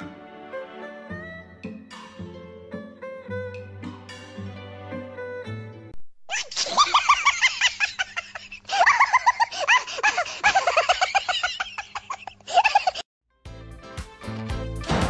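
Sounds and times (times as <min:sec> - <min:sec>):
high-pitched cackling laughter: 0:06.3 - 0:13.1.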